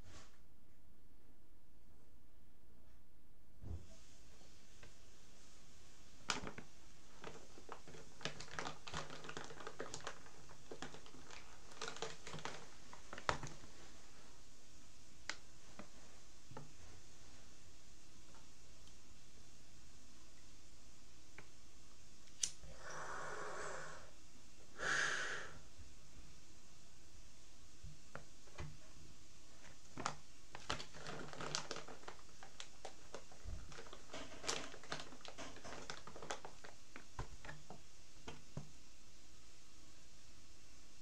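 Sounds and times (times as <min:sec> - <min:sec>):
person exhaling: 0:22.6 - 0:25.7
inhaling through a pipe: 0:22.6 - 0:25.8.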